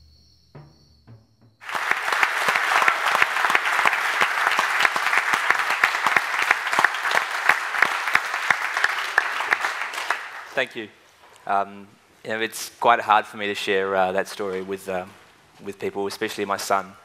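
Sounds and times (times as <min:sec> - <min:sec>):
audience applause: 0:01.6 - 0:10.8.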